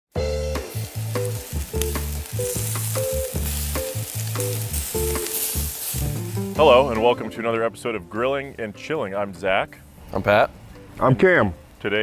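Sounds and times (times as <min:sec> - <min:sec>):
intro music with bass and percussion: 0:00.1 - 0:07.4
hot dogs sizzling on grill: 0:00.1 - 0:08.7.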